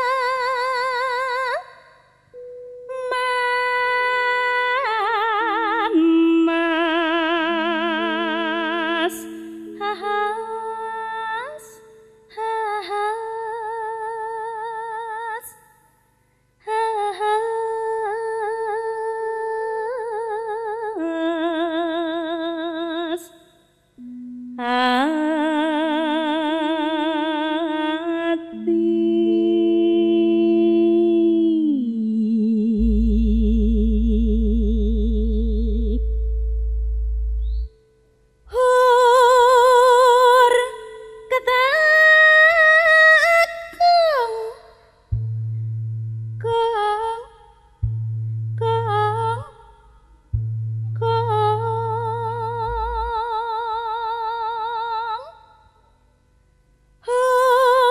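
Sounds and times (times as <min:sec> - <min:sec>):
woman singing with vibrato: 0:00.0 - 0:15.6, 0:16.6 - 0:23.3, 0:24.0 - 0:36.5, 0:38.5 - 0:45.4, 0:46.4 - 0:48.0, 0:48.6 - 0:50.2, 0:50.8 - 0:55.6, 0:57.0 - 0:57.9
sustained keyboard notes: 0:02.4 - 0:04.5
deep bass note: 0:32.8 - 0:37.8, 0:45.1 - 0:46.9, 0:47.8 - 0:53.4.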